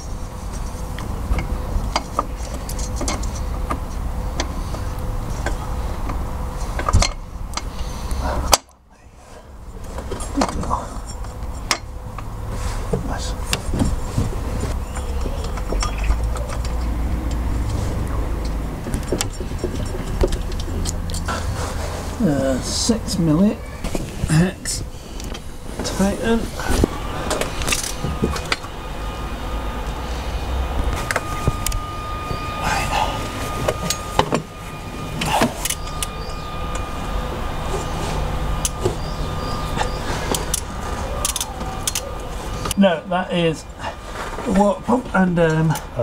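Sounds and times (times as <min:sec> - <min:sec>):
faint steady whine: 0:00.0 - 0:46.0
steady low rumble: 0:00.0 - 0:46.0
light clicks and knocks of parts: 0:00.4 - 0:08.7, 0:09.8 - 0:12.3, 0:12.9 - 0:21.6, 0:39.8 - 0:42.8.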